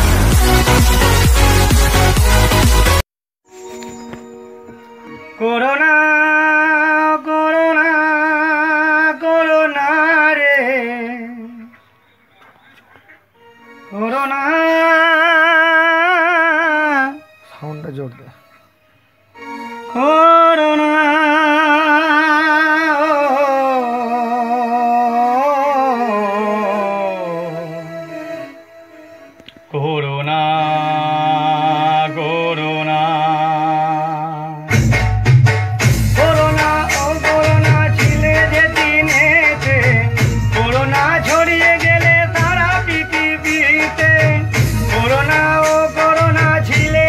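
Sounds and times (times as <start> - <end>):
man singing unaccompanied: 5.2 - 12.5, 13.8 - 17.4, 19.8 - 35.0, 35.8 - 47.0.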